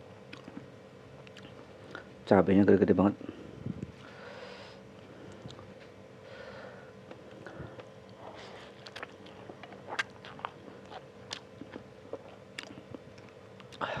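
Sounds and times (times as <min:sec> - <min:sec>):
person chewing noodles: 0:00.3 - 0:02.0, 0:07.4 - 0:13.9
soft breaths: 0:03.2 - 0:08.8
wet mouth clicks and smacks: 0:08.8 - 0:11.8.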